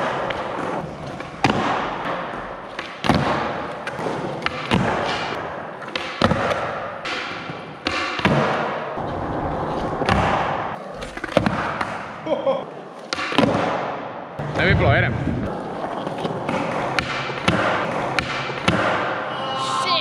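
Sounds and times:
skateboards rolling on concrete: 0.0 - 12.1, 15.4 - 18.9
skateboard clacks: 15.5 - 19.2.

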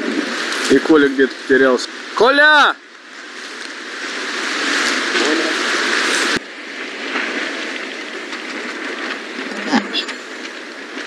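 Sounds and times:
rushing noise: 9.2 - 11.0.

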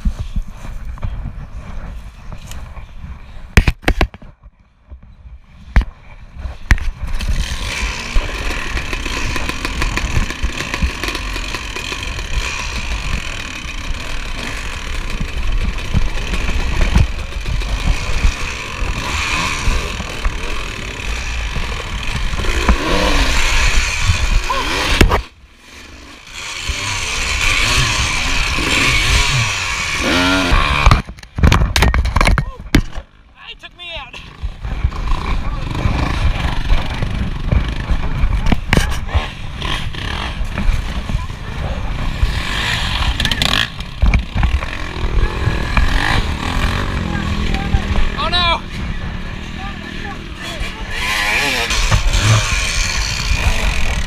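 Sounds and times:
dirt bike engines revving: 6.2 - 31.2, 33.0 - 54.0.

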